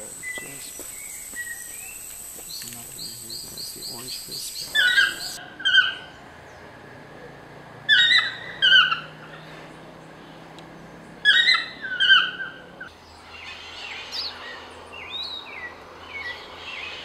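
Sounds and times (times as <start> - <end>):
toucan yelping calls: 0.0 - 6.1, 7.9 - 9.3, 11.2 - 14.6
small birds chirping: 0.0 - 6.7.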